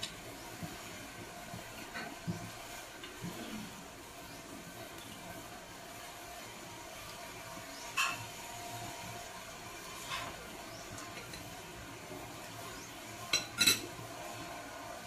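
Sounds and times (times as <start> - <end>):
tableware clinking: 13.3 - 13.9.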